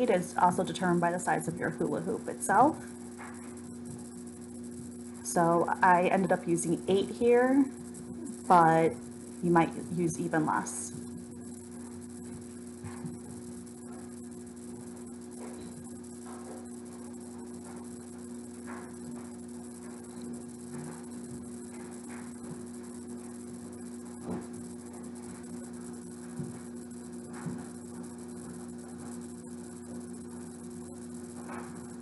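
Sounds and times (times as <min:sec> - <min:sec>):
low electrical hum: 0:00.0 - 0:32.0
rope rustling and tapping: 0:26.3 - 0:29.1.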